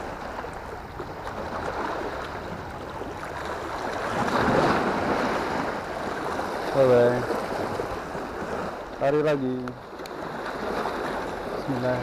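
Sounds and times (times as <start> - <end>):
wind on microphone: 0.0 - 8.8
sea water splashing on rocks: 1.2 - 8.6.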